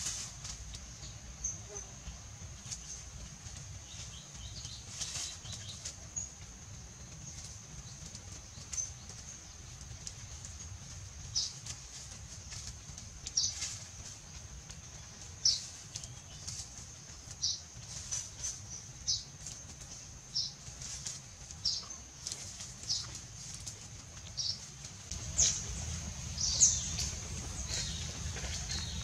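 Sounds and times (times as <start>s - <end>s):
insects droning: 25.1s - 29.0s.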